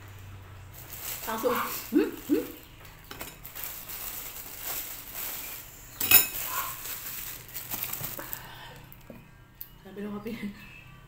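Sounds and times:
plastic bag crinkling: 0.7s - 9.1s.

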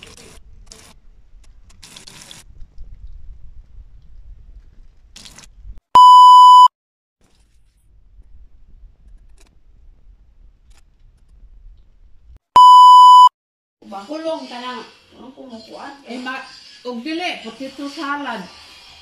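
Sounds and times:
test-tone beep: 6.0s - 6.7s, 12.6s - 13.3s
oil sizzling in a pan: 14.4s - 19.0s.

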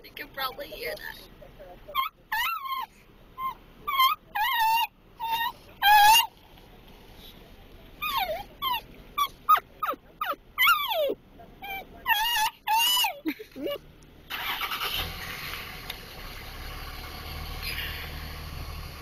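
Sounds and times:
dog whining: 1.9s - 6.3s, 8.0s - 13.8s.

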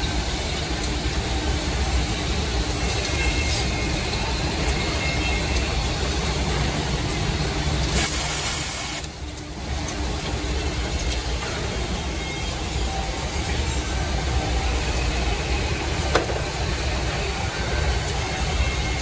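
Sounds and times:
loud hiss: 7.9s - 9.1s.

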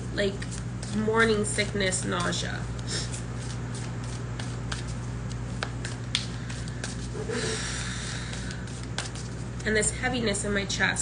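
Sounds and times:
steady low hum: 0.0s - 11.0s
cards being shuffled: 2.0s - 7.3s, 8.3s - 9.7s.

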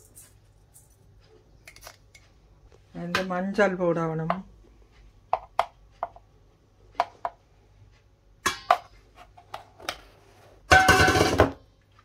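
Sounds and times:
spoon tapping and scraping container: 5.3s - 6.2s.

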